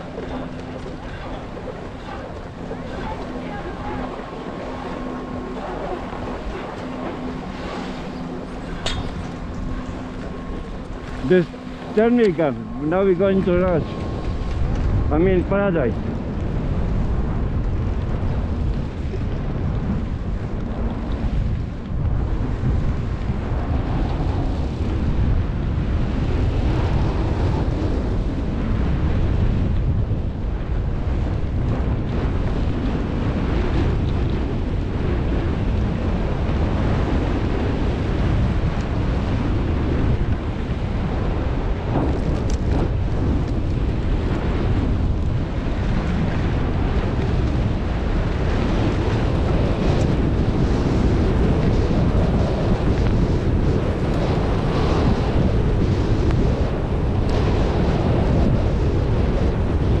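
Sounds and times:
wind rushing over microphone: 0:00.0 - 1:00.0.

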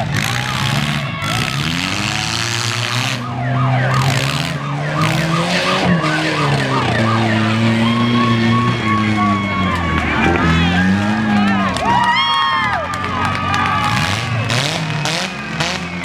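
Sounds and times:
car engines revving: 0:00.0 - 0:16.0
siren yelp wail: 0:00.2 - 0:14.5
steady high tone: 0:03.4 - 0:11.4.

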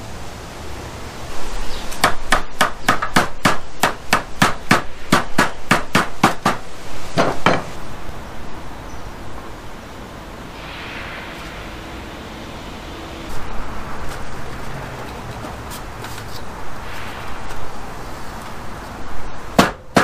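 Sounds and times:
hammer striking wood: 0:02.0 - 0:06.6, 0:07.2 - 0:07.7, 0:19.6 - 0:20.0.

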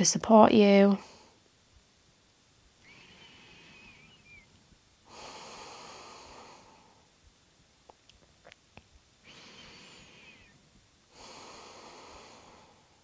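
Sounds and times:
woman breathing slowly: 0:02.8 - 0:07.2, 0:09.2 - 0:13.0.

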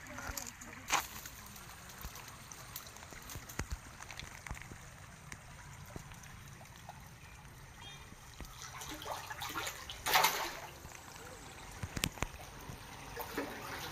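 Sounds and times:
water trickling and lapping: 0:00.0 - 0:13.9.

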